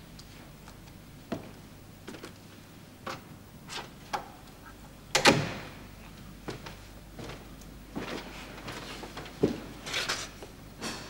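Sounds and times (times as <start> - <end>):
door opening and shutting: 5.1 - 5.8
footsteps on hard floor: 6.5 - 9.8.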